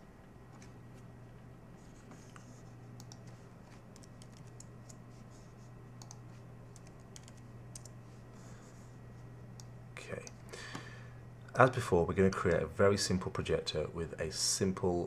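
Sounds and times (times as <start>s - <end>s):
steady low hum: 0.0s - 15.0s
keyboard typing: 1.9s - 5.2s, 6.0s - 8.0s.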